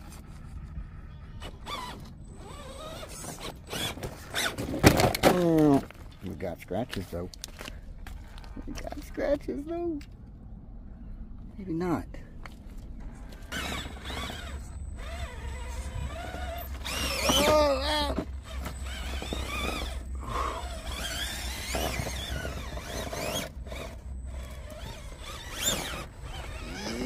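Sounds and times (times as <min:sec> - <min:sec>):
electric motor whining: 0:01.3 - 0:04.6, 0:13.4 - 0:27.0.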